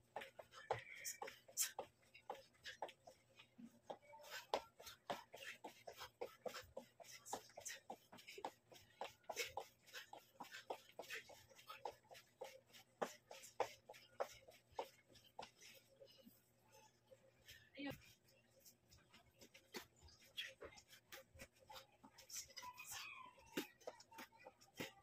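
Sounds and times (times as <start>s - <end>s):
soft exercise taps: 0.0s - 16.4s, 17.4s - 25.0s
breathing puffs: 4.2s - 16.6s.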